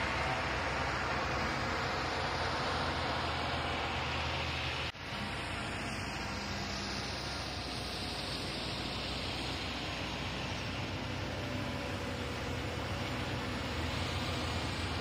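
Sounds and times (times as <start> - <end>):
diesel engines running: 0.0 - 15.0
constant hiss: 3.4 - 15.0.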